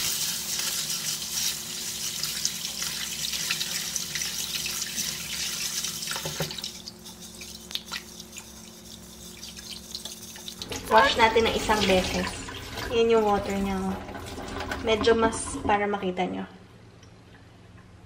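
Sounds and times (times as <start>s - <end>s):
tap running into metal bowl: 6.1s - 6.8s.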